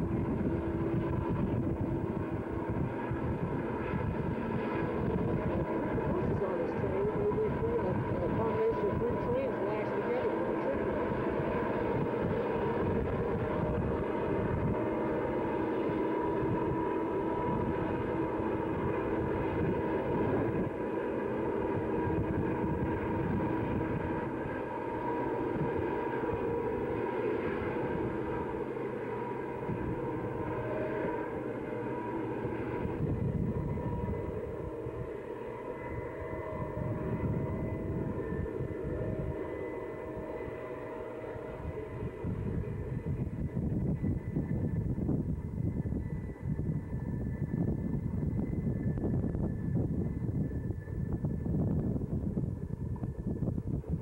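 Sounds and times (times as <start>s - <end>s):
distant diesel locomotives droning: 0.0s - 54.0s.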